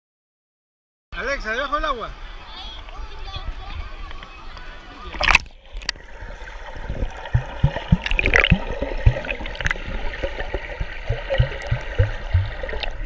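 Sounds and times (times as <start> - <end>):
underwater sloshing and gurgling: 5.1 - 13.0
short low underwater pops: 6.9 - 9.8, 10.5 - 13.0.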